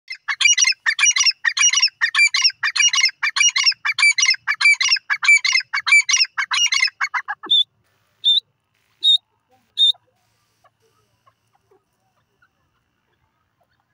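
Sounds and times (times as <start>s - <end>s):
francolin calling harshly: 0.1s - 12.7s
bird whistled note: 9.8s - 10.0s.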